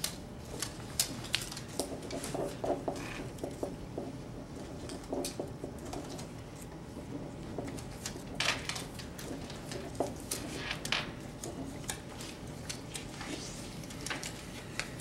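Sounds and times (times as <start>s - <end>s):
pens writing on paper: 1.8s - 8.4s.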